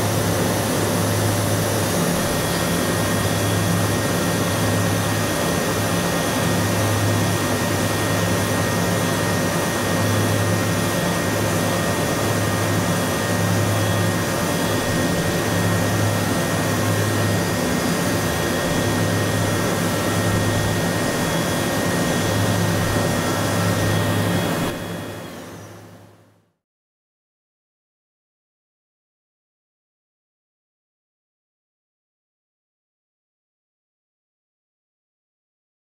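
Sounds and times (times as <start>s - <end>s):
milling machine whine and hiss: 0.0s - 26.0s
low machine hum: 0.0s - 26.2s.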